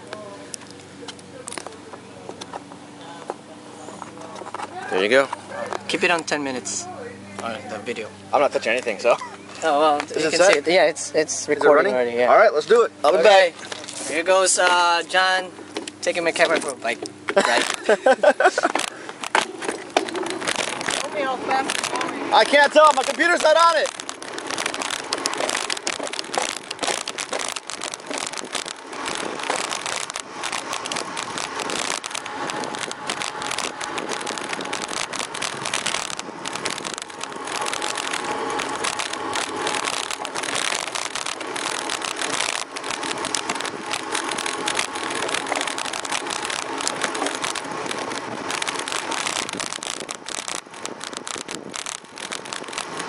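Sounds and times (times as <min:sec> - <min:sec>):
bicycle tyres on road: 0:00.0 - 0:53.0
camera mount rattling: 0:15.7 - 0:53.0.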